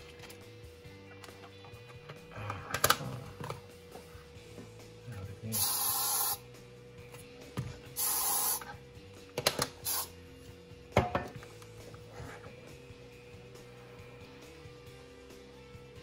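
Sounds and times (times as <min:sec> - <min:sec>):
aerosol can spraying: 0:05.5 - 0:06.4, 0:07.9 - 0:08.8, 0:09.6 - 0:10.2.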